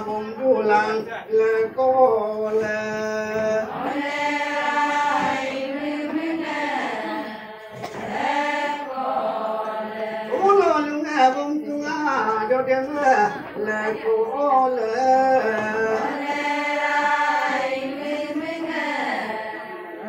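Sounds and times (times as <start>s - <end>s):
group of women chanting: 3.6s - 10.4s, 15.5s - 20.0s.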